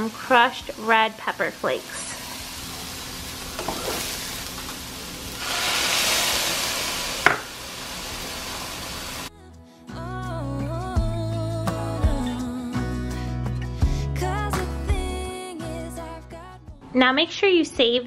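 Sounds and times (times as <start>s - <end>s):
vegetables sizzling in frying pan: 0.0s - 9.3s
background music: 8.2s - 18.0s.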